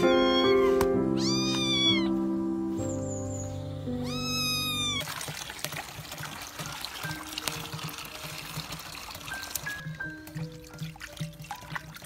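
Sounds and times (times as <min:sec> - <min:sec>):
kitten mewing: 0:00.0 - 0:02.2, 0:04.0 - 0:05.0
background music: 0:00.0 - 0:05.0
tap water splashing into a basin: 0:05.0 - 0:12.0.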